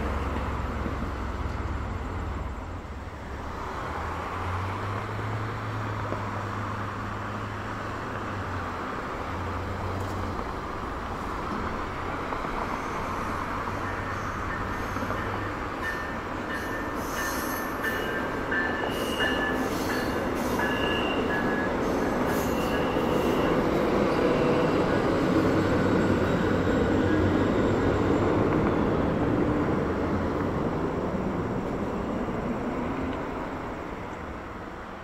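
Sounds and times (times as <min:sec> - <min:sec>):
train wheels rumbling on rails: 0:00.0 - 0:35.0
high wheel squeal: 0:12.6 - 0:28.4.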